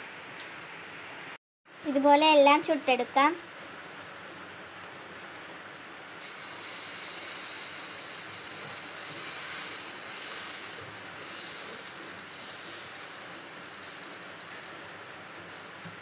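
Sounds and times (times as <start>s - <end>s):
faint hiss: 6.1s - 16.0s
batter sizzling on a hot griddle: 6.2s - 16.0s.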